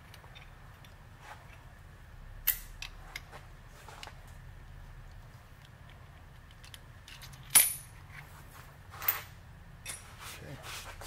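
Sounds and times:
faint low hum: 0:00.0 - 0:11.0
metal tools clinking: 0:09.0 - 0:10.2.

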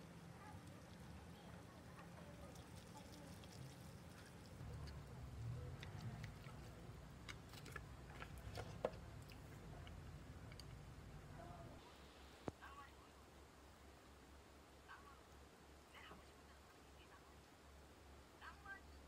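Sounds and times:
low steady hum: 0:00.0 - 0:19.0
chopsticks stirring noodles: 0:00.6 - 0:10.8.

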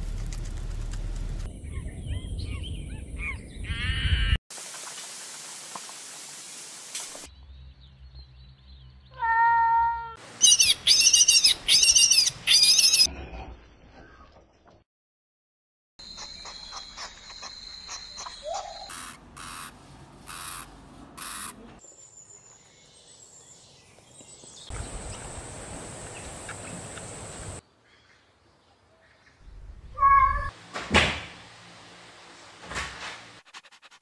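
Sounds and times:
steady hiss: 0:04.5 - 0:07.3.

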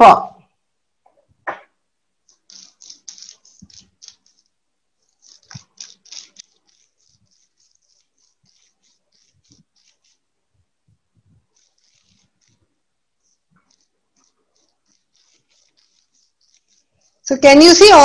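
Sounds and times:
paintbrush dabbing strokes: 0:02.2 - 0:18.0.

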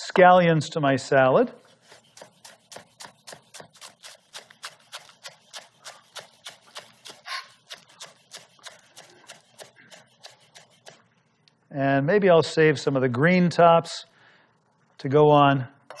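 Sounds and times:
knife chopping on wooden board: 0:01.8 - 0:11.0.

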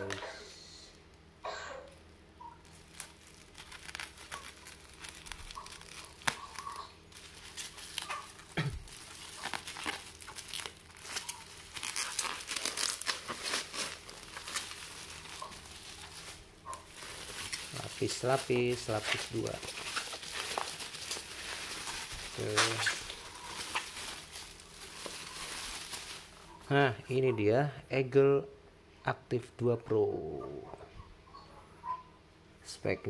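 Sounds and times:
bubble wrap crinkling: 0:02.4 - 0:27.3
scissors cutting plastic: 0:03.0 - 0:08.4.

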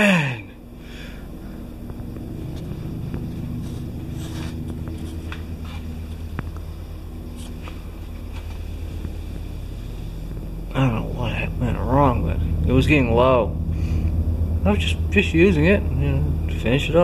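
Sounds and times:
low machine hum: 0:00.0 - 0:17.0
soft footstep scuffs: 0:07.4 - 0:09.1.

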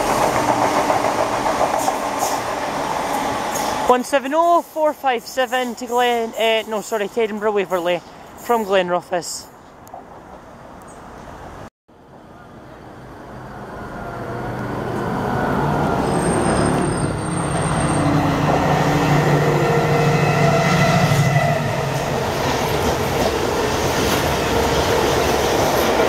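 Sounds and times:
diesel locomotive engine drone: 0:12.0 - 0:26.0.

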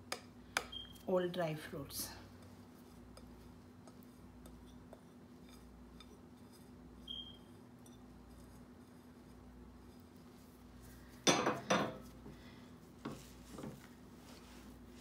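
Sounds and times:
brief high squeak: 0:07.1 - 0:07.5.

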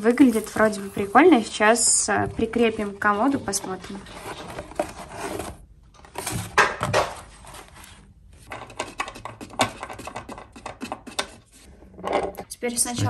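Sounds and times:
cardboard box rustling: 0:02.6 - 0:08.0.

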